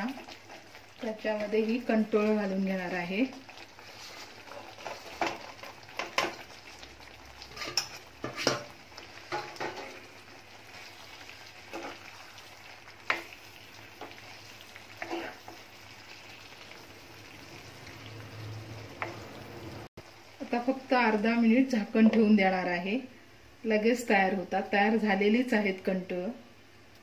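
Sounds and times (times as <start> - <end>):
low sizzle: 0.0 - 27.0
spatula scraping and knocking pan: 3.8 - 6.4, 7.5 - 10.1, 11.7 - 12.4, 13.0 - 14.4, 15.0 - 15.7.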